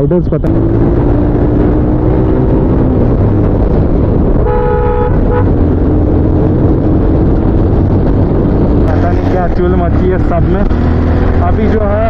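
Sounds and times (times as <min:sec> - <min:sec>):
motorcycle engine running: 0:00.0 - 0:12.0
vehicle horn beeping: 0:04.4 - 0:05.6.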